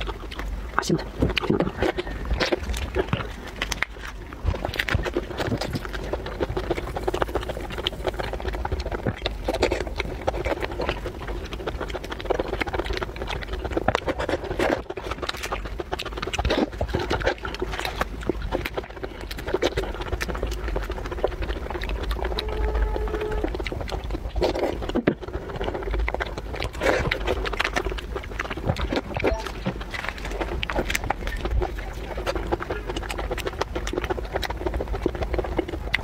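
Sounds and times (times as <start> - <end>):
chewing: 0.0 - 36.0
lips sucking and smacking: 0.0 - 36.0.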